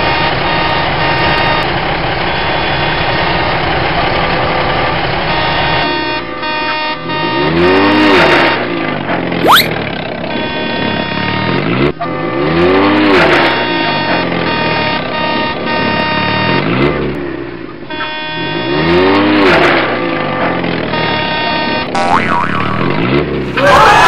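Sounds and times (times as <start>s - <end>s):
car engines passing by: 7.1s - 24.0s
rising whistle: 9.4s - 9.7s.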